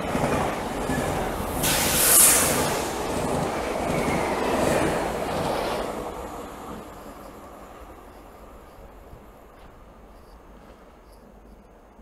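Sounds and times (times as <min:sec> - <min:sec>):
train wheels rumbling on rail: 0:00.0 - 0:12.0
high-pitched hiss: 0:01.6 - 0:03.1.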